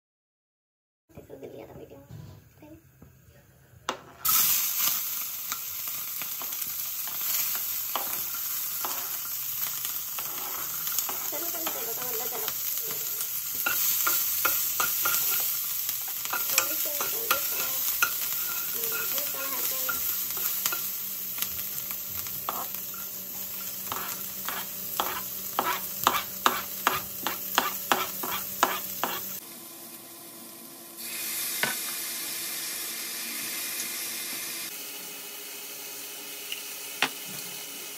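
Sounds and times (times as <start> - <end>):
vegetables sizzling in hot oil: 4.2 - 37.9
spatula scraping and knocking pan: 6.4 - 9.3, 10.2 - 12.2, 12.9 - 20.9, 22.2 - 29.4.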